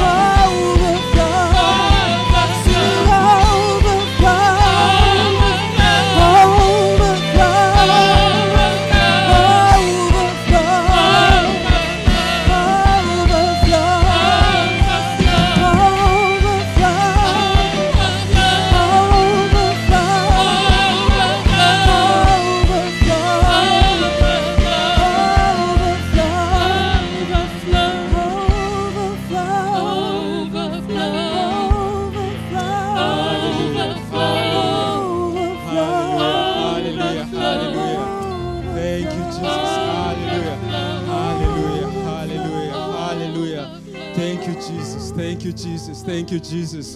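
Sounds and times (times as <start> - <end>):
drum and bass beat: 0.0 - 28.9
lead and backing singers: 0.0 - 46.9
soft held chords: 0.0 - 46.9
worship band playing: 0.0 - 46.9.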